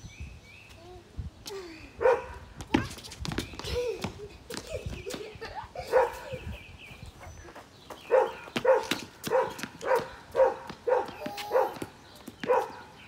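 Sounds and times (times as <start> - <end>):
dog barking: 2.0 - 2.3, 5.9 - 6.2, 8.1 - 11.8, 12.5 - 12.8.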